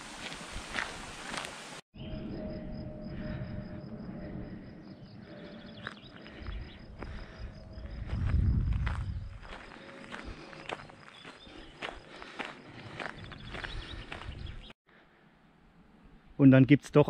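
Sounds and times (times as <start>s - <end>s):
footsteps on a trail: 0.0s - 1.8s, 5.2s - 14.8s
insect chirping: 2.0s - 14.6s.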